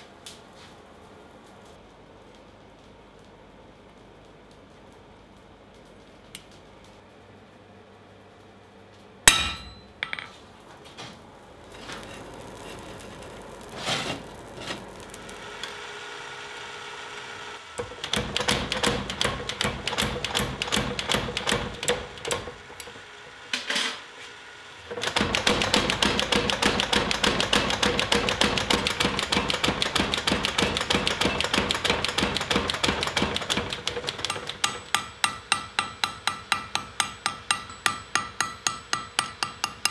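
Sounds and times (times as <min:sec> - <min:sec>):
power hammer pounding hot steel: 0:09.3 - 0:10.2, 0:17.8 - 0:22.6, 0:24.9 - 0:39.9
sharp metal clang: 0:09.3 - 0:10.4.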